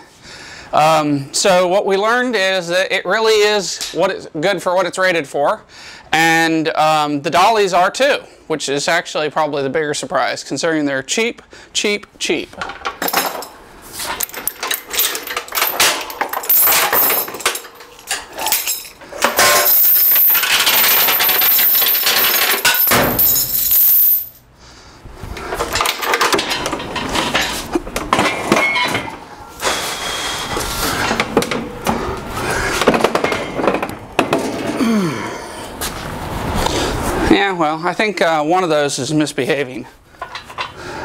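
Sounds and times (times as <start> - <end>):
metal knocks and clinks: 12.6 - 24.4
steel chain clattering: 12.9 - 24.5.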